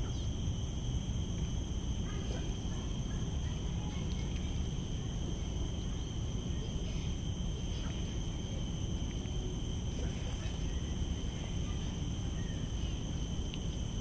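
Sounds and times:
insects droning: 0.0s - 14.0s.

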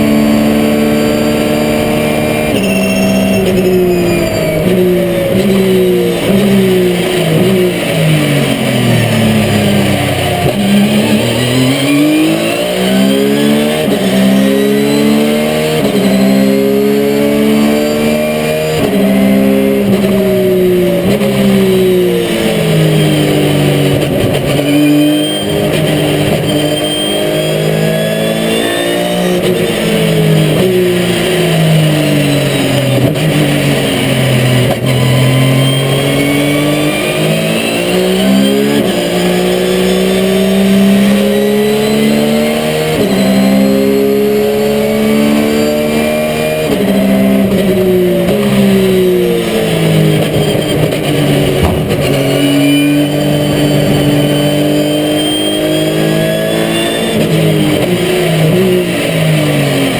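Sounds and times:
race car engine revving: 0.0s - 59.9s
high whine: 0.3s - 12.8s, 49.0s - 57.0s.

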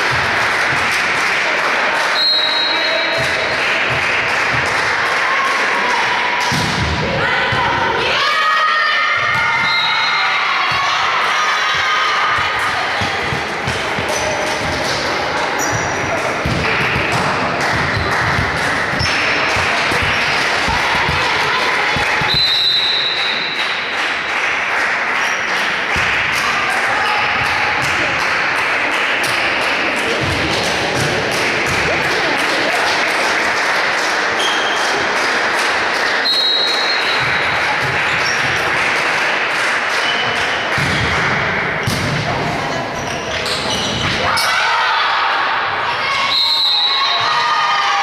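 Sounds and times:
crowd shouting in a hall: 0.0s - 48.0s
shoes squeaking on wooden court: 13.8s - 16.2s, 42.9s - 44.2s.

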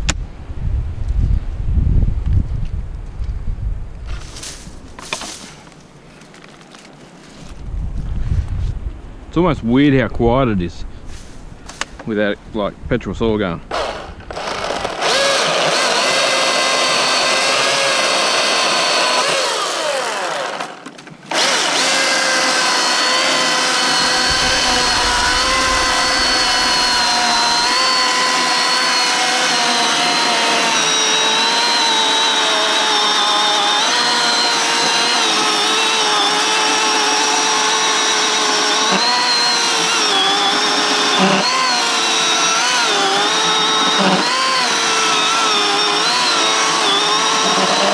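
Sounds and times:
electric chainsaw cutting log: 13.7s - 47.9s.

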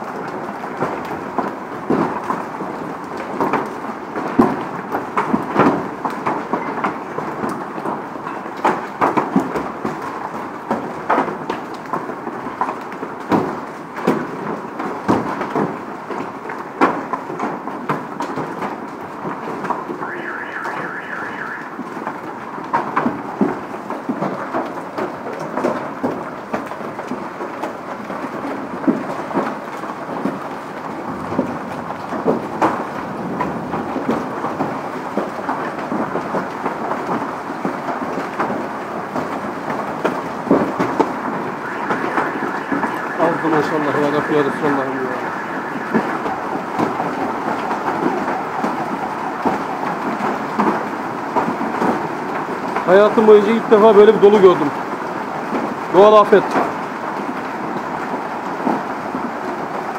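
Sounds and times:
hail pelting down: 0.0s - 59.9s
hailstones cracking on cars: 0.0s - 59.9s
pulsing high tone: 19.9s - 21.9s, 41.6s - 47.0s.

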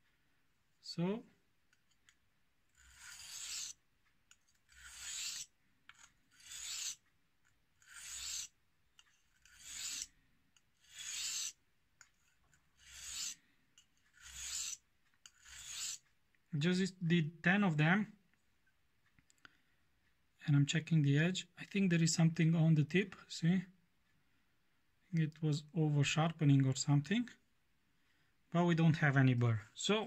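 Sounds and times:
knife scraping on whetstone: 2.7s - 10.1s, 10.8s - 16.1s.

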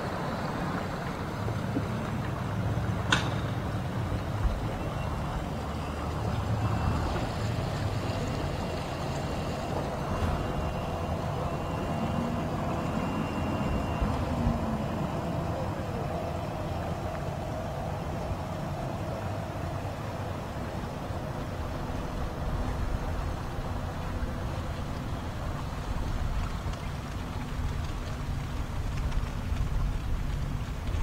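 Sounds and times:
outboard motor idling: 0.0s - 31.0s
faint high beeps: 10.4s - 16.5s.

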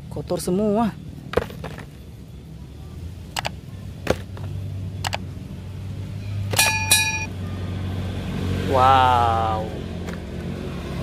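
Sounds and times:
short ringing chime: 6.6s - 7.3s.

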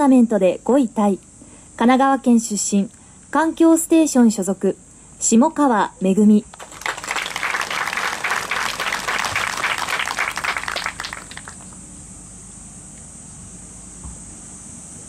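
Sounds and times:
gallery clapping: 6.5s - 11.8s.

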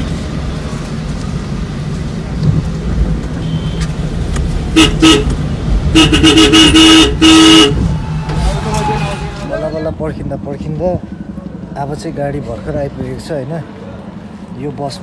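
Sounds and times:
car driving rumble: 0.0s - 15.0s
car horn honking: 3.4s - 3.9s, 4.7s - 9.6s.

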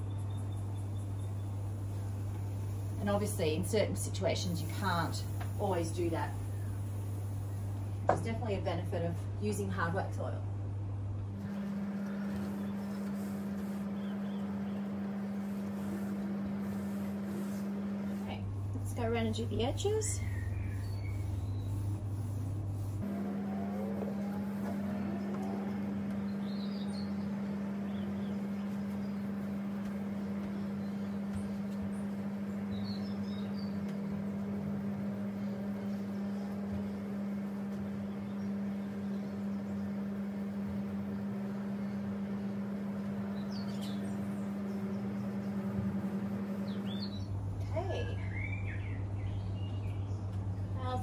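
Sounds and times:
low electrical hum: 0.0s - 51.0s
faint bird chirps: 20.0s - 21.9s.

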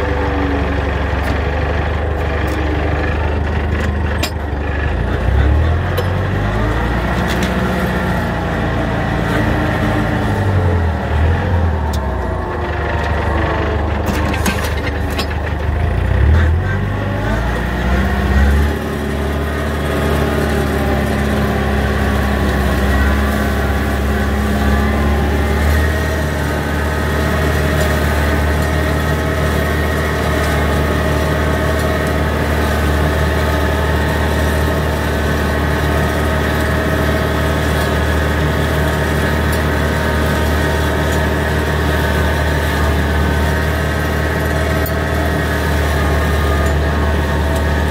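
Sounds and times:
flail mower cutting grass: 0.0s - 47.9s
tractor engine running under load: 0.0s - 47.9s.

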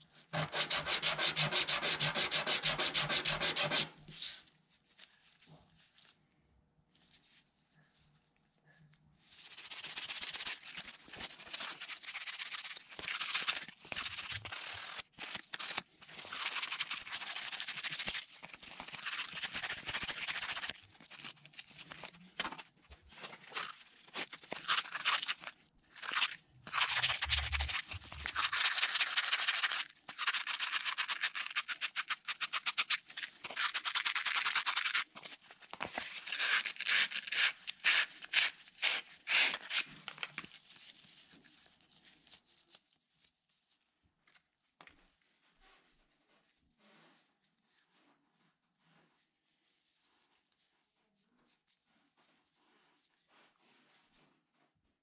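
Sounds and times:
sandpaper rubbing on wood: 0.4s - 4.0s.

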